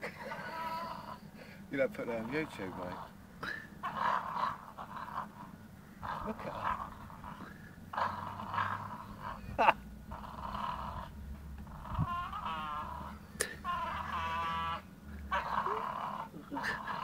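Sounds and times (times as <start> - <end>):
dog growling: 0.1 - 1.3, 1.9 - 17.0
dog whining: 0.2 - 1.3, 6.1 - 17.0.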